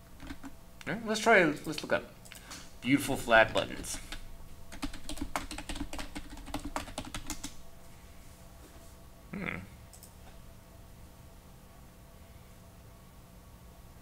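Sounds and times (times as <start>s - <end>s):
fast typing on keyboard: 0.2s - 0.5s, 3.4s - 7.6s.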